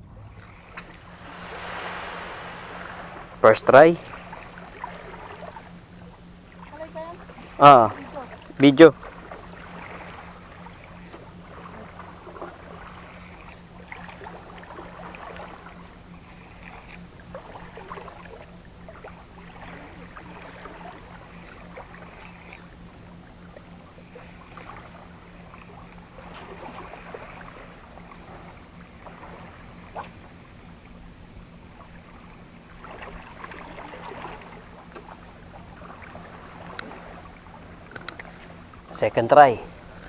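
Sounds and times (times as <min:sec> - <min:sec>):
steady low hum: 0:00.0 - 0:07.6.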